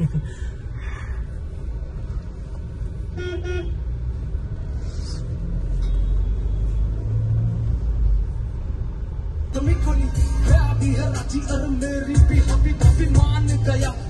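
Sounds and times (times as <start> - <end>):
vehicle horn toots: 3.2 - 3.8
car cabin road rumble: 6.9 - 14.0.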